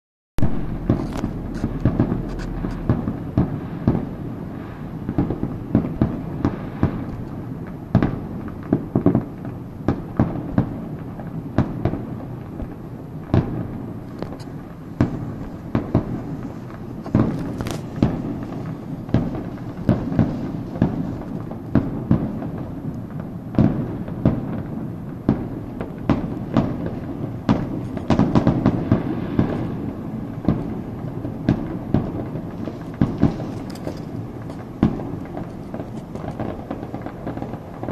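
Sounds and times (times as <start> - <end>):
low rumble: 0.4 - 4.9
distant fireworks bangs: 0.4 - 37.9.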